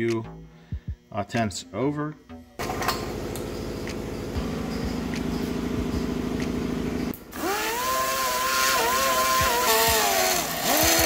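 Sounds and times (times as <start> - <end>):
steady low hum: 0.0 - 11.0
die grinder whining: 7.3 - 11.0.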